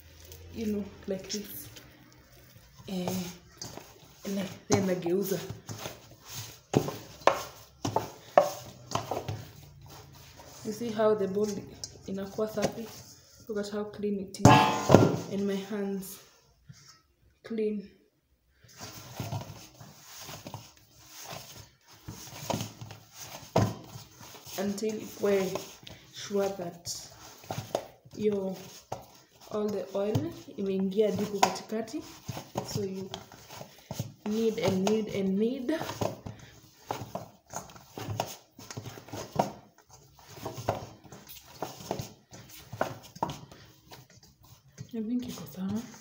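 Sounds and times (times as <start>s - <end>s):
hands kneading dough: 0.0s - 13.7s, 18.6s - 46.0s
sharp knock: 14.5s - 15.3s.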